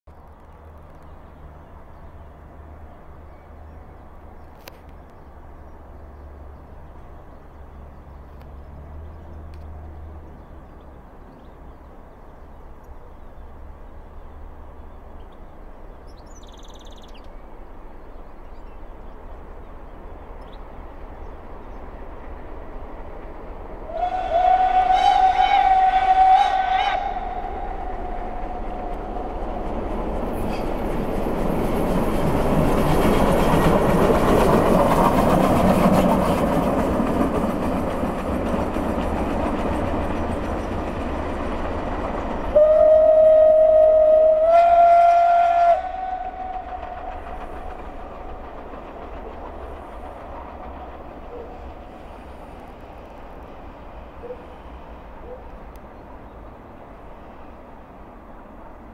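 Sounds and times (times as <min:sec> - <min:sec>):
rush of steam and wheels: 0:00.1 - 0:58.9
steam locomotive whistle: 0:23.9 - 0:29.2, 0:42.5 - 0:47.5.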